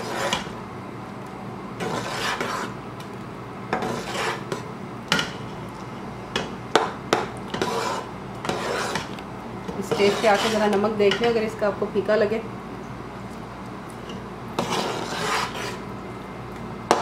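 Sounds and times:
spoon stirring thick sauce in pot: 1.8s - 2.8s, 3.8s - 4.7s, 7.2s - 10.8s, 14.6s - 15.8s.

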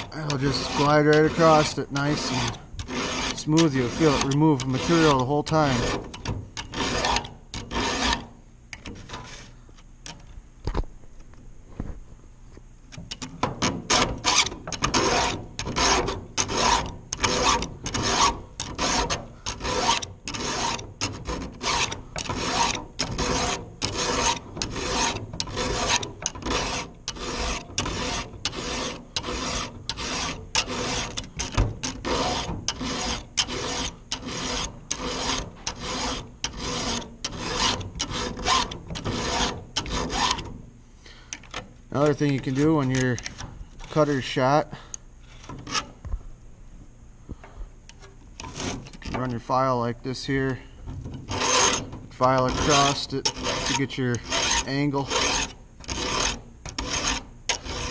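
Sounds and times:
file rasping on saw chain: 0.0s - 9.5s, 13.1s - 40.5s, 45.4s - 46.0s, 48.4s - 49.7s, 51.2s - 57.9s.

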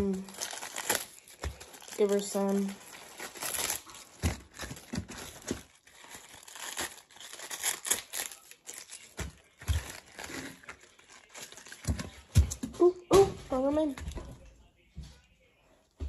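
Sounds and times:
lettuce crackling and tearing: 0.0s - 12.2s.

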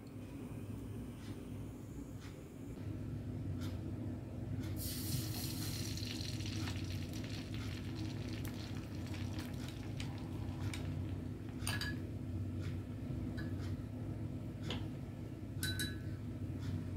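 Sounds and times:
egg sizzling in a frying pan: 4.8s - 11.2s.

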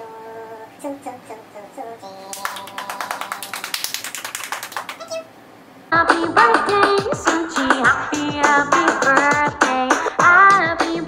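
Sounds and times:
person singing: 0.0s - 3.6s, 5.9s - 11.0s
hands clapping: 2.3s - 5.2s
loud music with singing: 5.9s - 11.0s.

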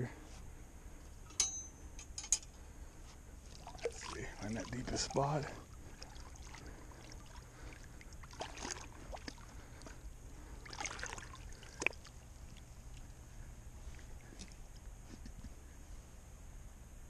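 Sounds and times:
water splashing and sloshing: 3.4s - 15.3s.

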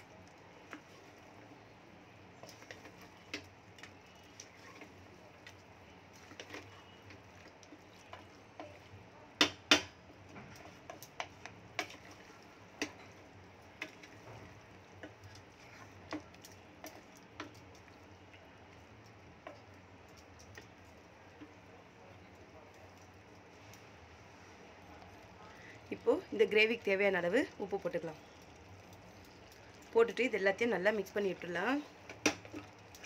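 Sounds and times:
wooden spatula scraping a metal pot: 10.3s - 17.6s.

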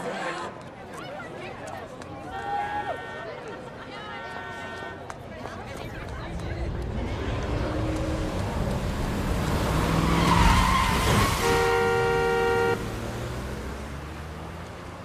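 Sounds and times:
car rushing past: 6.0s - 15.0s
car horn sounding: 11.1s - 13.0s.

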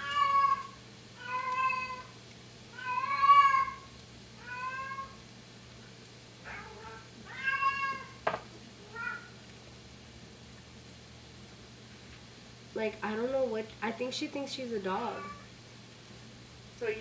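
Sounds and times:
cat meowing loudly: 0.0s - 5.2s, 6.4s - 8.2s, 8.8s - 9.3s, 15.2s - 15.5s.

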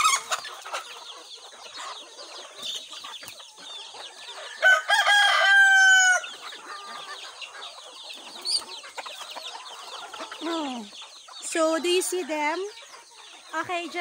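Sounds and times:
chickens clucking: 0.0s - 14.0s
rooster crowing: 4.3s - 6.4s.

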